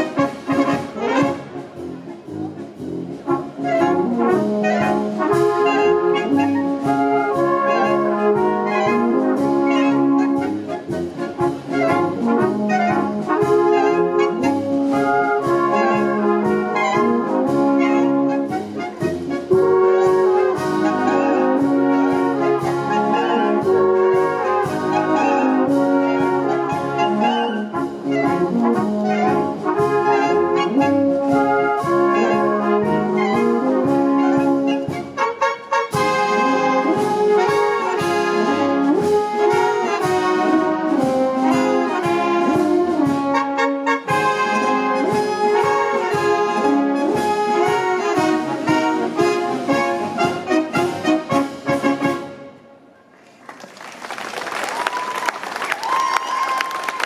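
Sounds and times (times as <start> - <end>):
brass music with steady beat: 0.0 - 52.9.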